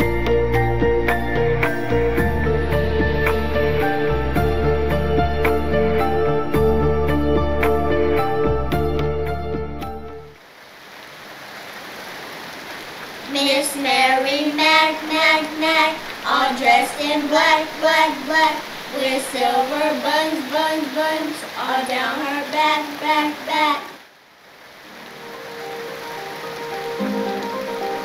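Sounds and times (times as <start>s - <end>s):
steady rain: 0.0s - 28.0s
child singing: 13.3s - 24.0s.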